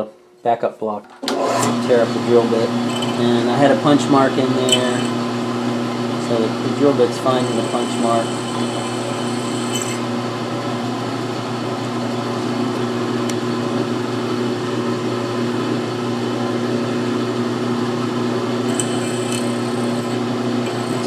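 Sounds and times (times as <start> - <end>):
drill press motor humming: 2.7 - 3.4, 4.2 - 10.2, 18.3 - 21.0
drill bit cutting sheet metal: 2.8 - 3.3, 4.7 - 5.2, 7.0 - 10.0, 18.6 - 21.0.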